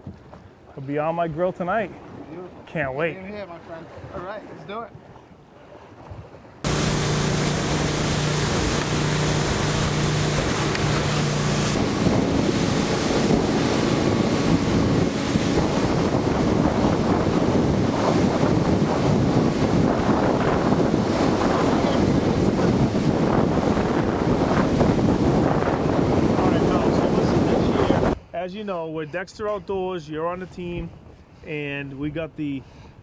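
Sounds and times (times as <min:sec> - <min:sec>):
boat engine hum: 0:01.6 - 0:28.2
rushing water: 0:05.8 - 0:28.2
wind buffeting the microphone: 0:06.0 - 0:28.3.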